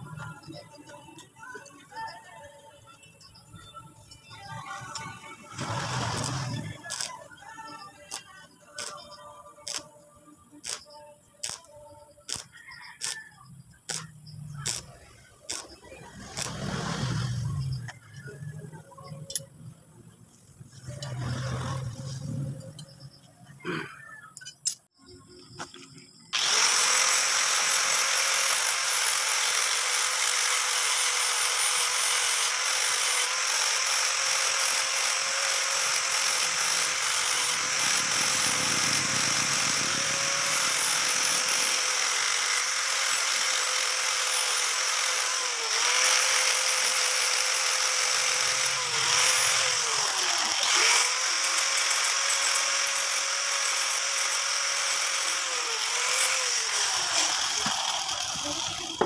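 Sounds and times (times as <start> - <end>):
angle grinder grinding metal: 4.4 - 9.9, 10.6 - 13.2, 13.9 - 18.3, 26.4 - 59.0.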